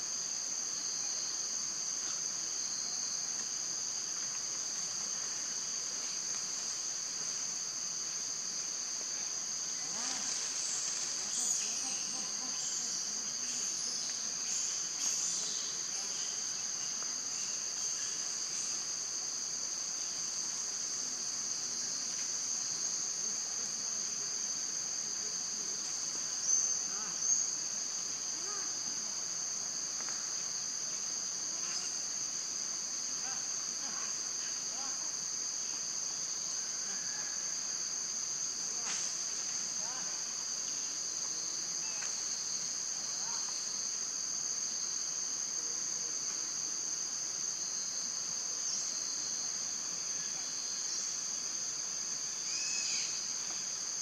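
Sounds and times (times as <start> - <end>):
high-pitched insect chorus: 0.0 - 54.0
short insect chirps: 52.4 - 54.0.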